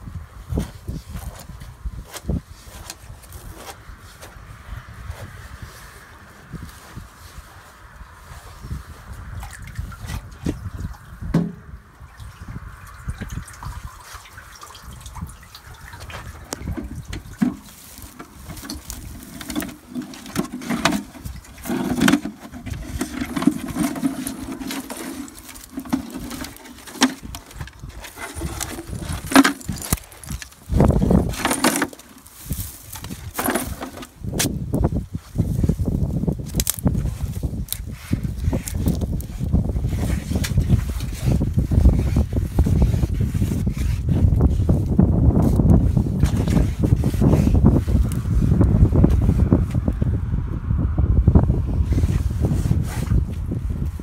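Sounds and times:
water dripping and splashing: 9.4 - 19.2
metal bucket knocking and scraping: 11.3 - 11.7, 16.0 - 32.3, 33.0 - 34.2.

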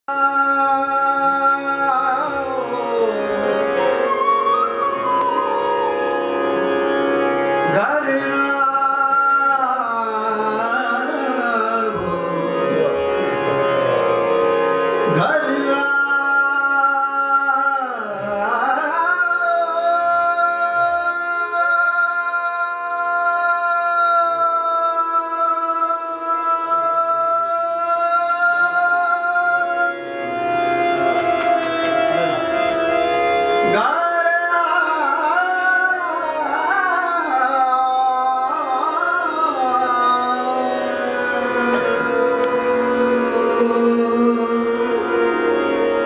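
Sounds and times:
man singing classical vocals: 0.0 - 5.9, 7.6 - 46.0
harmonium: 0.0 - 46.0
flute: 3.4 - 7.5.

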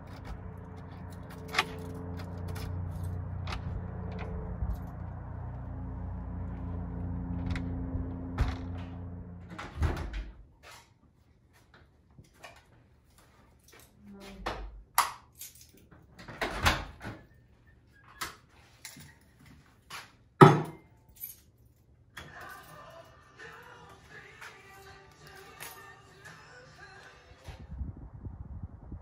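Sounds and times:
objects knocking on wooden workbench: 20.4 - 20.8.

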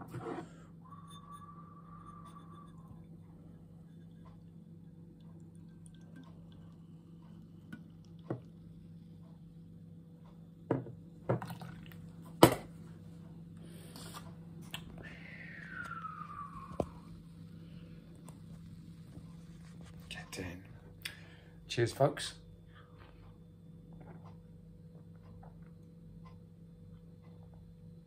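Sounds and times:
beer pouring and fizzing: 11.3 - 12.0.

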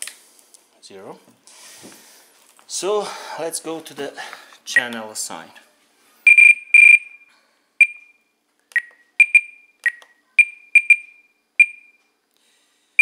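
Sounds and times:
short electronic beeps: 6.3 - 8.2, 8.8 - 12.0.

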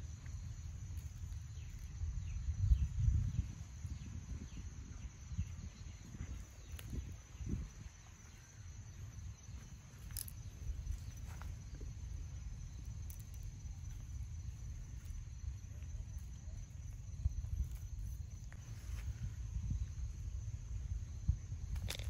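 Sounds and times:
insects trilling: 0.0 - 22.0
low rumble: 8.6 - 22.0.

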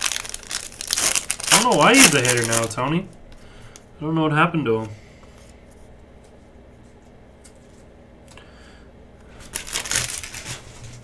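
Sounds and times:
papery rustle: 0.0 - 2.8, 9.4 - 11.0.

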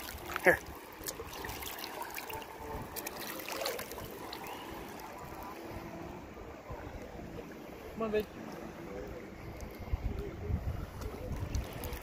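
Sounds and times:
water lapping and splashing: 0.0 - 12.0
wind noise: 9.3 - 12.0.

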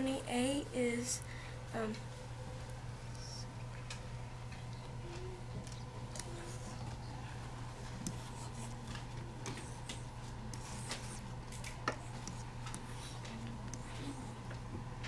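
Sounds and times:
steady low hum: 0.0 - 15.0
marker writing on a whiteboard: 7.8 - 14.4.

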